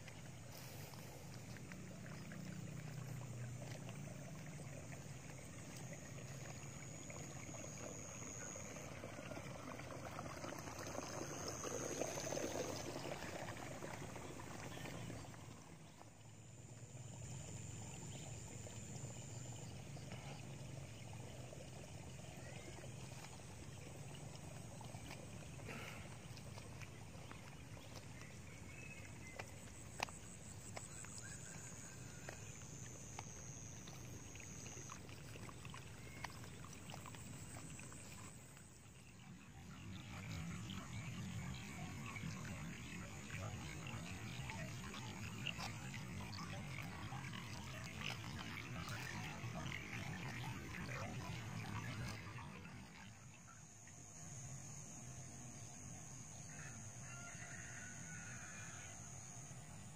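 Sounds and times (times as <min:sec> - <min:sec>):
water trickling and gurgling: 0:00.0 - 0:59.9.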